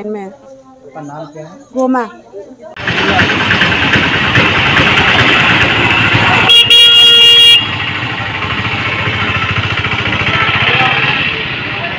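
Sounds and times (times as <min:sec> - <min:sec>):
motorcycle engine running: 0:02.8 - 0:11.9
vehicle horn: 0:05.8 - 0:08.1.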